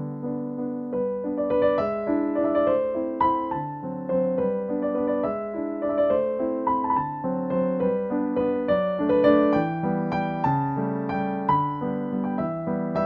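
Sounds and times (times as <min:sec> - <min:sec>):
piano tune: 0:00.0 - 0:13.0.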